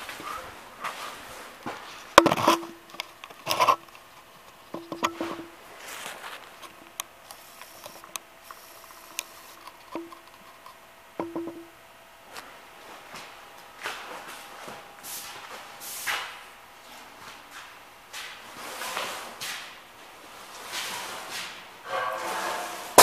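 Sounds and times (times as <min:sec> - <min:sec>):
footsteps: 0:00.0 - 0:03.9, 0:04.7 - 0:08.0, 0:12.3 - 0:23.0
handling clicks and knocks: 0:02.1 - 0:05.5, 0:09.1 - 0:11.7.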